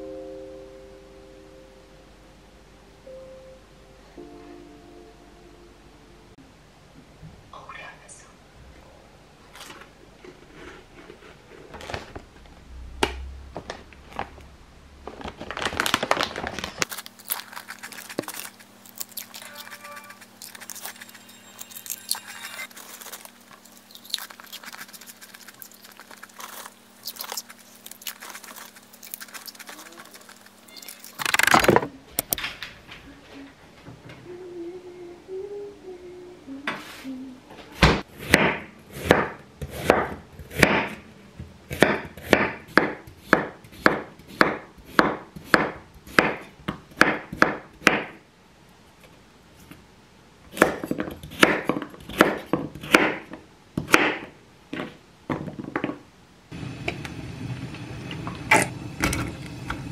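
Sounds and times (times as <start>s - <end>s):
foil bag crinkling: 15.0s - 31.7s.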